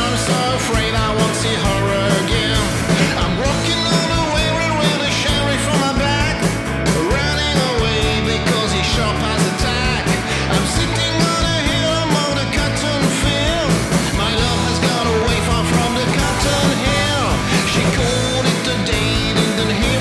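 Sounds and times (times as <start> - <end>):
blues-rock band playing: 0.0 - 20.0.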